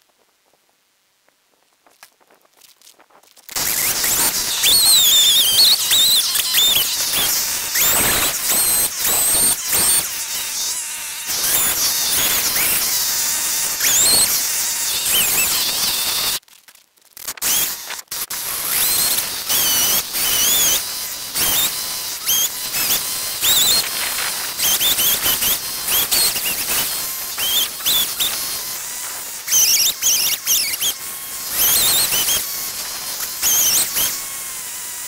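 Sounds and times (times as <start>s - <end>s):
chainsaw revving cutting log: 3.6s - 16.4s, 17.5s - 35.0s.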